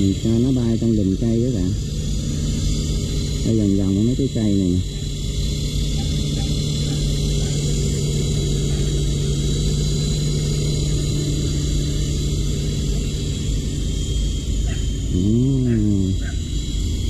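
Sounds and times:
high motor whine: 0:00.0 - 0:17.0
toy helicopter rotor hum: 0:00.0 - 0:17.0.

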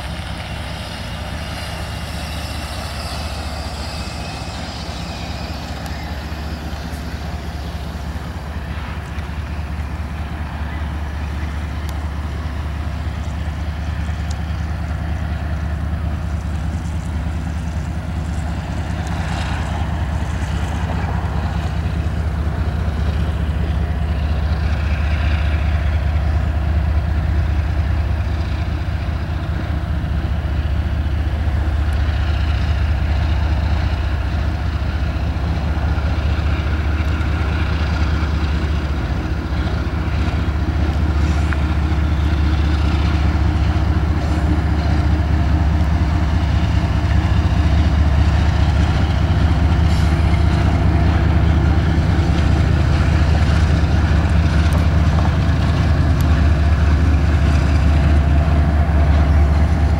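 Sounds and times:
diesel locomotive rumbling: 0:00.0 - 0:59.9.

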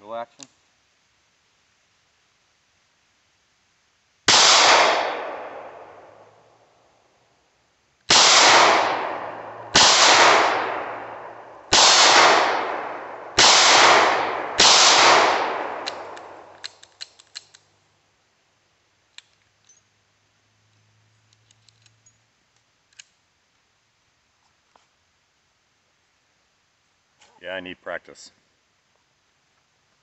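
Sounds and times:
revolver gunshots echoing: 0:04.3 - 0:06.3, 0:08.1 - 0:16.5
metallic clicks of revolver: 0:15.7 - 0:17.7, 0:21.2 - 0:23.2.

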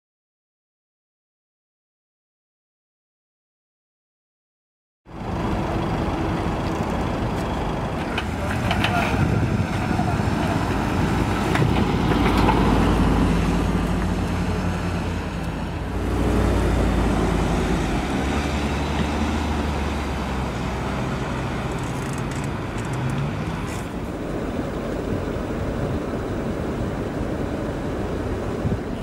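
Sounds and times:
car engine low hum: 0:05.1 - 0:29.0.

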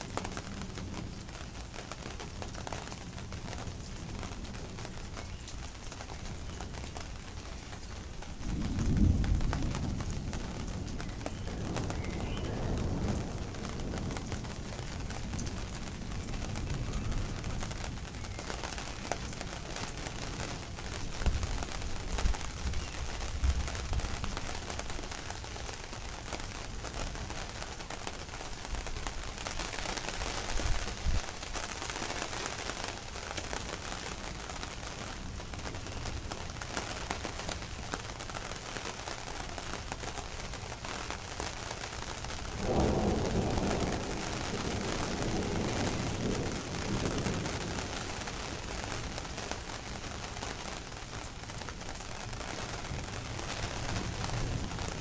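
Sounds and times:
heavy rain falling: 0:00.0 - 0:55.0
thunder rumbling: 0:08.3 - 0:24.9, 0:42.4 - 0:55.0.

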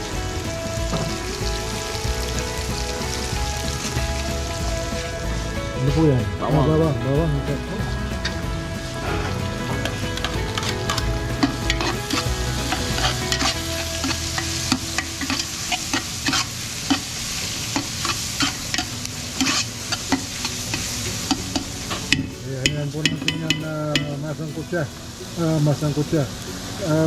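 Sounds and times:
food sizzling in pot: 0:00.0 - 0:27.0
metal spoon clinking against pot: 0:17.8 - 0:24.2.

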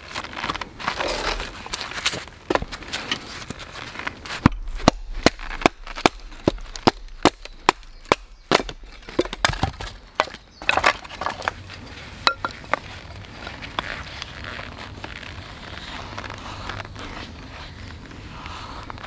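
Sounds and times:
wood cracking and splitting: 0:00.0 - 0:17.2.

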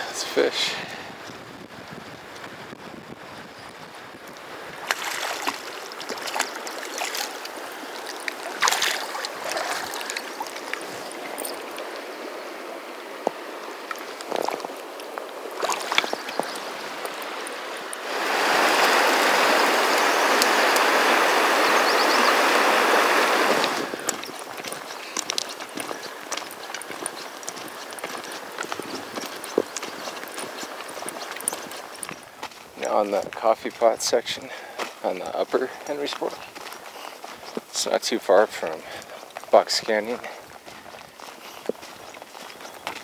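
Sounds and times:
river water running: 0:00.0 - 0:43.0
water splashes and knocks: 0:04.8 - 0:11.9, 0:13.2 - 0:21.0, 0:22.8 - 0:32.3.

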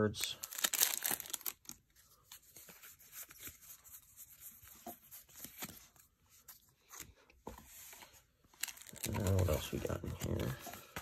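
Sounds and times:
cards rustling: 0:00.2 - 0:11.0.

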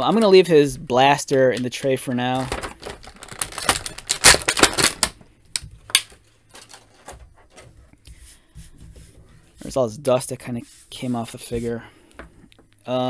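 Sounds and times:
plastic blister tray crackling: 0:01.1 - 0:07.7.

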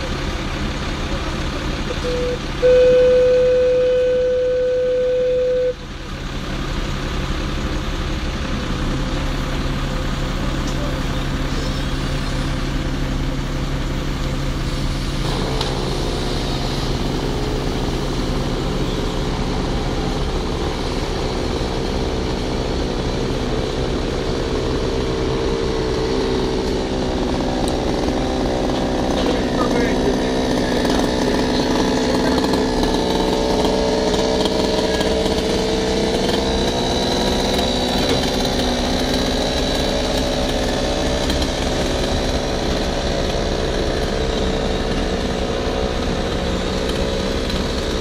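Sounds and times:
engine running: 0:00.0 - 0:48.0
higher engine sound: 0:00.0 - 0:48.0.

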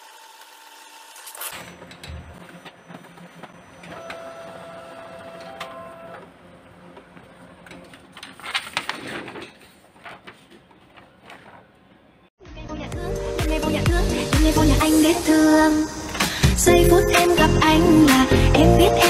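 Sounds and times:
printer mechanism whining: 0:00.1 - 0:08.3.

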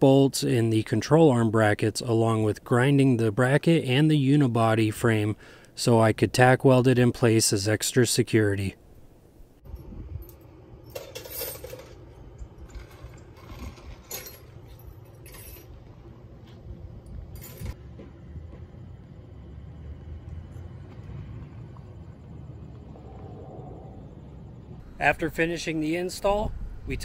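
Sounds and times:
low steady hum: 0:00.0 - 0:27.0
metallic clinks and jangles: 0:10.2 - 0:12.1, 0:12.7 - 0:16.0, 0:17.3 - 0:17.8.

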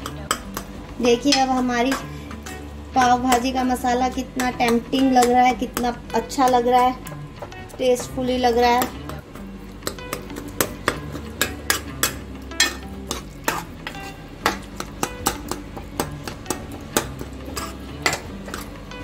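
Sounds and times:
ladle clinking on pan: 0:09.9 - 0:18.8
ladle scraping metal pan: 0:10.3 - 0:15.3, 0:16.4 - 0:18.8.

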